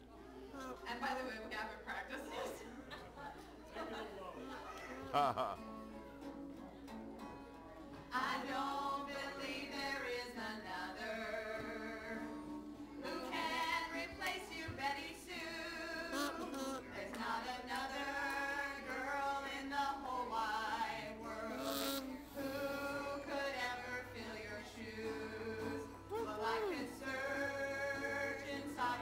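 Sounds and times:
acoustic guitar: 4.2s - 29.0s
women and man singing: 8.1s - 29.0s.

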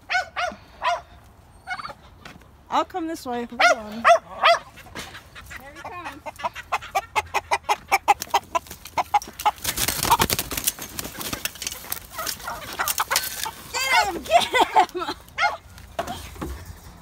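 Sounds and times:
chickens squawking: 3.6s - 15.7s
chickens clucking in alarm: 4.3s - 15.6s
wings flapping and feet scuffling: 4.7s - 17.0s.

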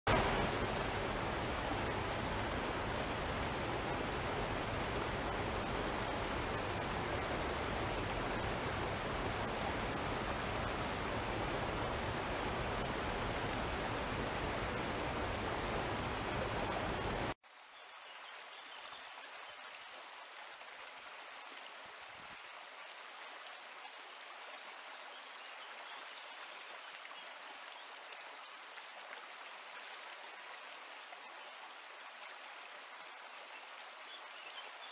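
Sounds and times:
water rushing over stones: 0.1s - 17.4s.

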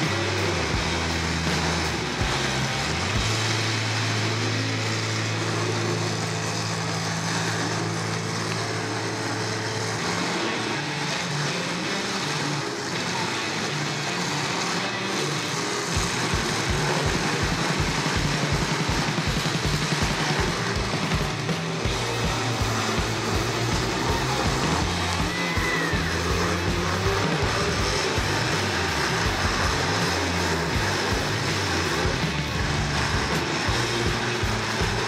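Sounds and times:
bass drum beat: 0.0s - 3.8s, 16.0s - 35.0s
arena noise: 0.0s - 35.0s
car engines running: 0.0s - 35.0s
music playing: 0.0s - 35.0s.

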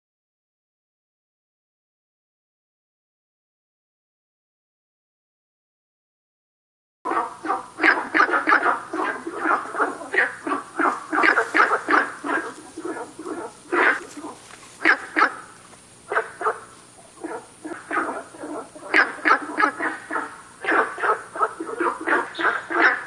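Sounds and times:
frog calling bark-like notes: 7.1s - 23.0s.

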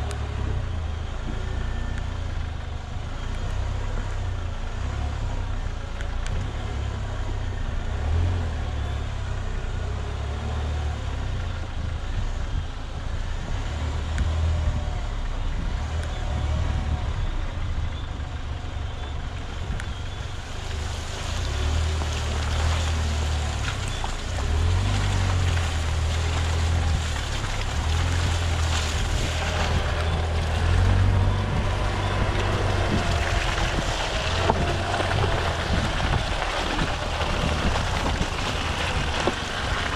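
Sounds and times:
tyre noise on dirt track: 0.0s - 39.9s
tyres crackling through mud: 0.0s - 39.9s
wind rumble: 11.4s - 39.9s.

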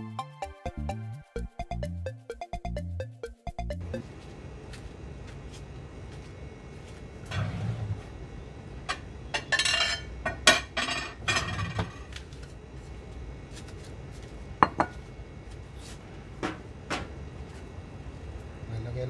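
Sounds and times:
dishes and utensils clinking: 9.4s - 12.1s.

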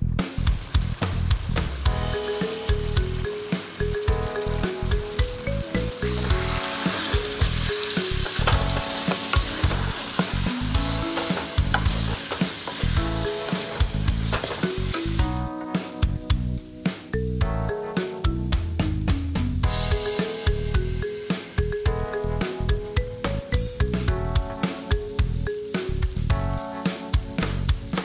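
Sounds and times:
background music with melody: 0.0s - 28.0s
gravy sizzling in a metal pan: 0.4s - 15.5s.

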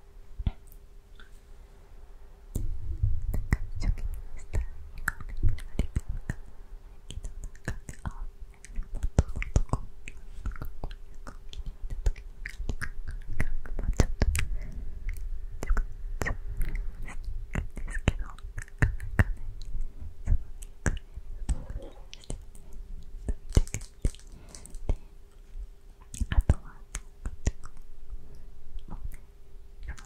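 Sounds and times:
wet mouth clicks: 2.6s - 25.0s, 26.0s - 27.9s, 28.8s - 30.0s
person whispering: 3.2s - 6.4s, 13.6s - 25.1s, 26.1s - 27.8s.

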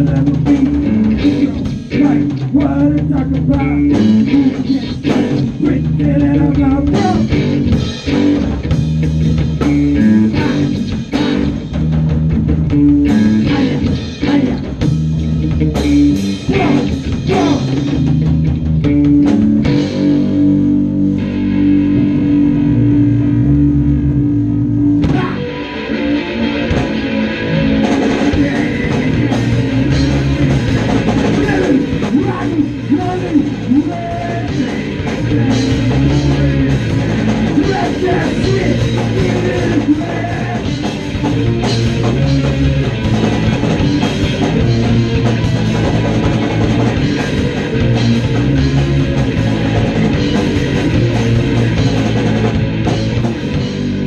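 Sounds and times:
drum kit: 0.0s - 54.0s
electric bass: 0.0s - 54.0s
electric guitar: 0.0s - 54.0s.

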